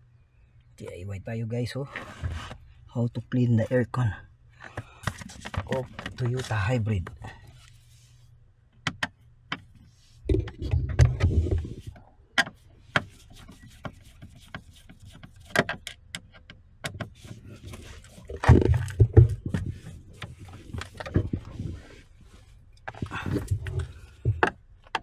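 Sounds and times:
clattering and rubbing: 1.9s - 2.7s, 4.7s - 8.2s, 9.6s - 25.0s
clicks and knocks on plastic trim: 22.9s - 25.0s.

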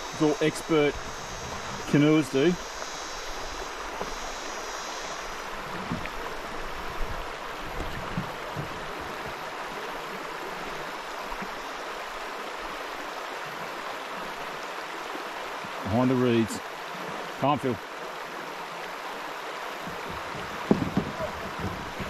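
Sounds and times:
insect buzz: 0.0s - 22.0s
river water rushing over rocks: 0.0s - 22.0s
soft low knocks: 19.8s - 22.0s.

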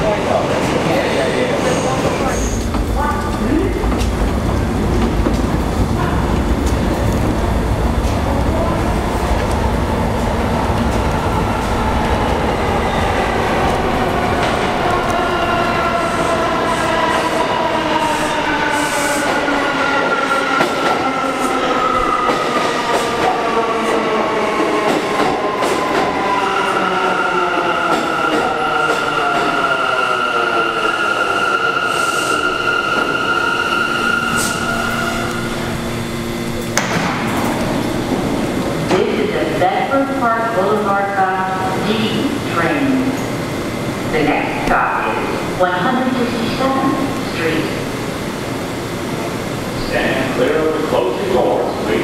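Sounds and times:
train electric propulsion whine: 2.2s - 52.0s
high squeal of train brakes: 31.2s - 35.3s.

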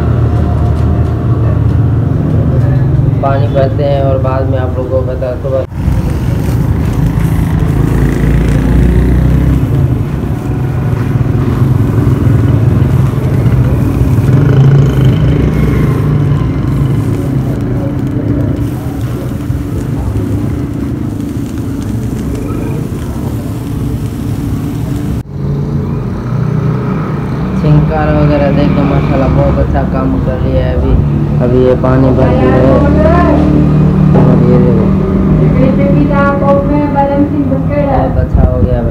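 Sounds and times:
water gushing and splashing: 5.7s - 25.2s.

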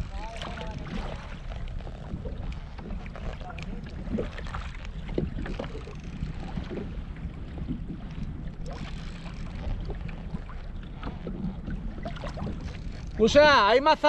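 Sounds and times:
water lapping against kayak hull: 0.0s - 14.0s
wind buffeting microphone: 0.0s - 14.0s
small knocks and splashes: 8.6s - 13.2s.

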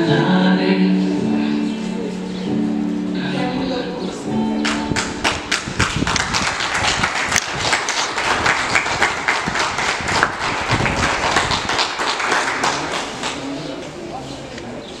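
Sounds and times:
people applauding: 4.6s - 13.8s.

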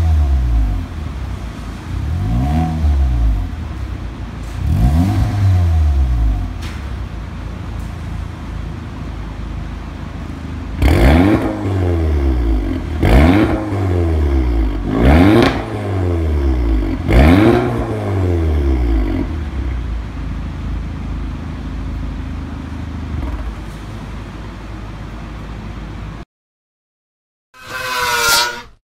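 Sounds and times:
car engine revving: 0.0s - 6.6s, 9.9s - 20.3s
car engine idling: 0.0s - 26.2s.

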